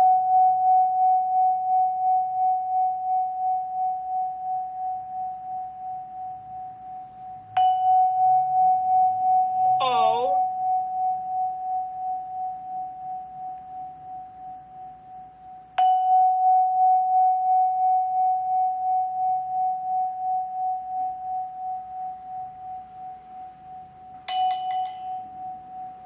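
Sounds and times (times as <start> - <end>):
vibraphone note ringing: 9.8 - 10.5.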